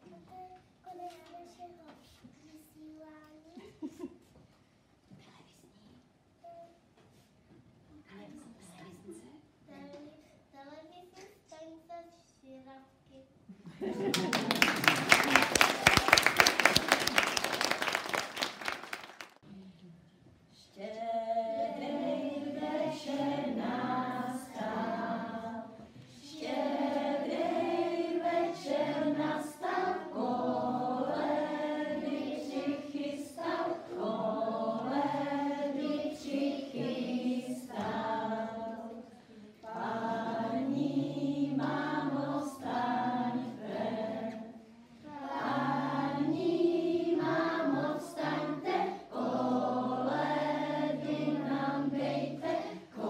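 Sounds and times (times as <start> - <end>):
children singing together: 20.8 - 53.0.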